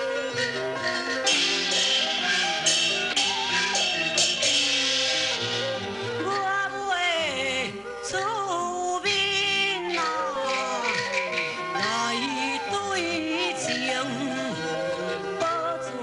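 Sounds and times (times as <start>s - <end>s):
traditional instrumental accompaniment: 0.0s - 16.0s
woman singing opera aria: 6.1s - 16.0s.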